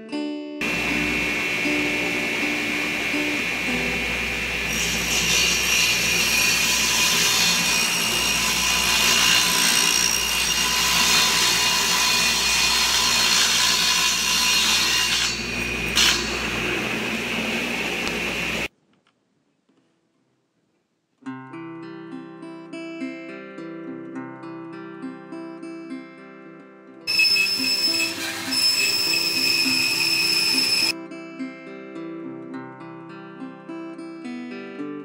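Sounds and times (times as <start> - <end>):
table saw cutting wood: 0.6 - 18.7, 27.1 - 31.0.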